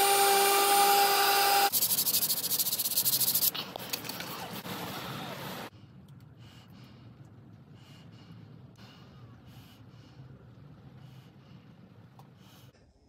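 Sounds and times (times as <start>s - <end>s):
power tool motor running: 0.0s - 1.7s.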